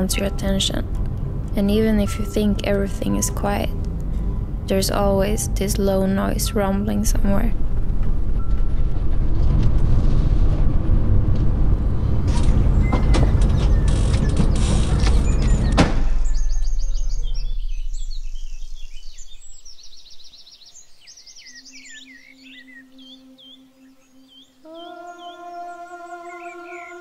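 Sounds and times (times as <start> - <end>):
car driving on gravel: 7.8 - 18.1
small birds chirping: 13.5 - 27.0.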